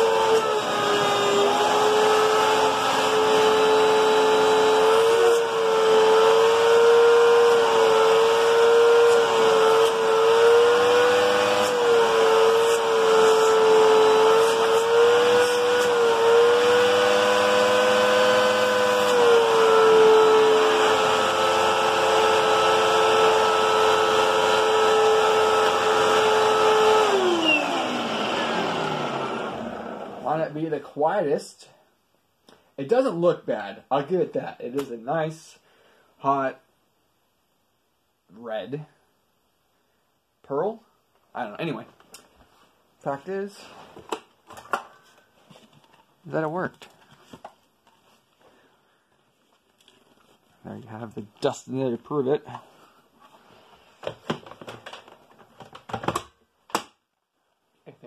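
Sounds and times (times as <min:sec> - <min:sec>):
vacuum cleaner motor whine: 0:00.0 - 0:30.2.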